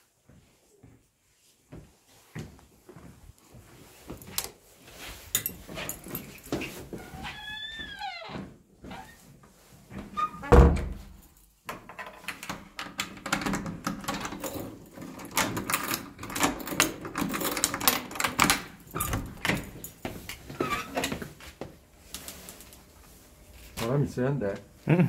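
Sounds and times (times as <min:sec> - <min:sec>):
wooden door thudding shut: 0:10.4 - 0:11.2
key turning in lock: 0:11.9 - 0:19.8
door handle rattling: 0:12.0 - 0:19.8.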